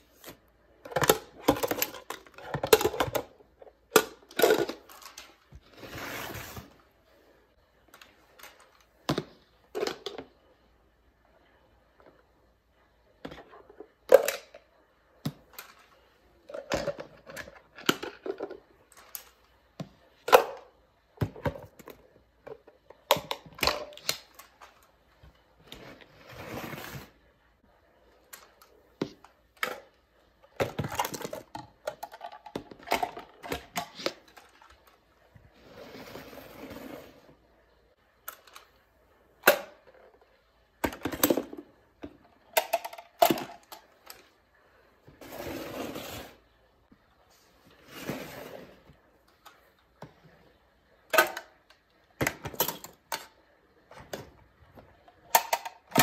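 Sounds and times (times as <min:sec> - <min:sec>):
plastic toy bins clacking: 0:00.1 - 0:05.8, 0:07.9 - 0:10.4, 0:13.2 - 0:25.0, 0:28.2 - 0:35.1, 0:38.2 - 0:38.8, 0:39.4 - 0:44.4, 0:51.1 - 0:56.0.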